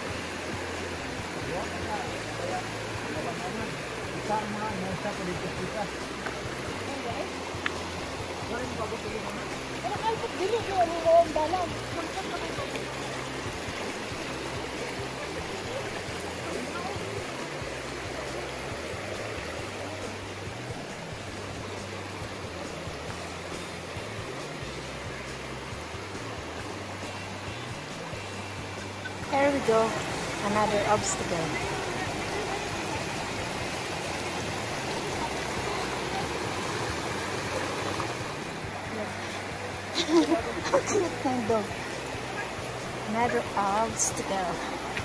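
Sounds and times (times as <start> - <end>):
creek water rushing over rocks: 0.0 - 45.0.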